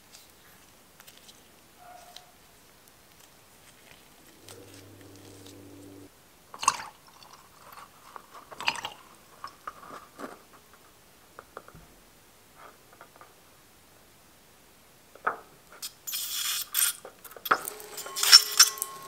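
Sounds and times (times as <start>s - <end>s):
faint steady hum: 3.5s - 6.3s.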